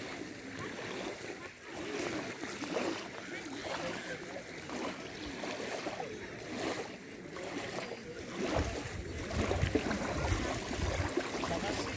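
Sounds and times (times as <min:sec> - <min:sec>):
lake waves lapping on gravel: 0:00.0 - 0:11.9
wind rumble on microphone: 0:08.4 - 0:11.9.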